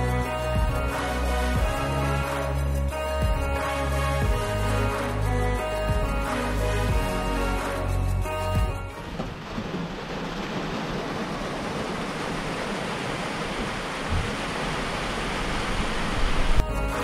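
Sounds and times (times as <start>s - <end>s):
rain on a van roof: 8.9s - 16.7s.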